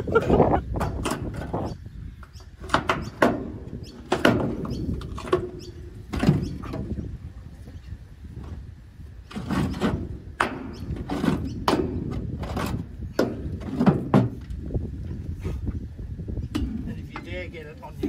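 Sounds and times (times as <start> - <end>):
irregular knocks and thuds: 0.7 - 7.0, 9.3 - 15.2.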